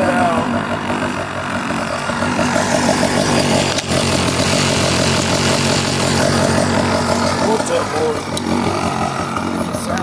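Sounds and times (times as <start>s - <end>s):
motorized bicycle engine running: 0.0s - 10.0s.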